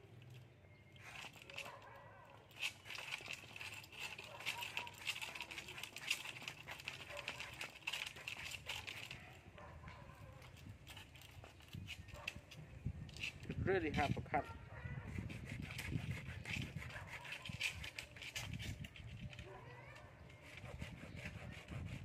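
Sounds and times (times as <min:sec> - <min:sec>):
knife scraping bamboo: 0:00.9 - 0:09.3, 0:15.1 - 0:22.0.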